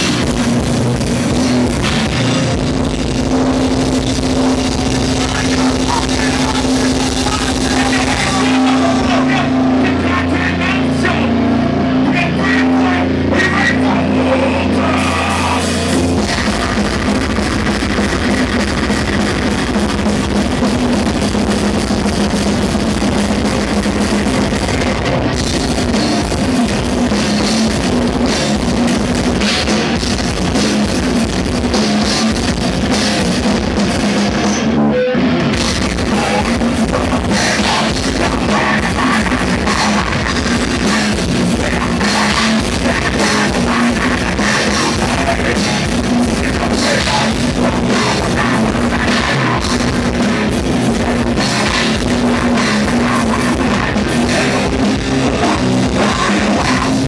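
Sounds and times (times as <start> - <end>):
fast drumming: 0.0 - 57.0
heavy metal band playing live: 0.0 - 57.0.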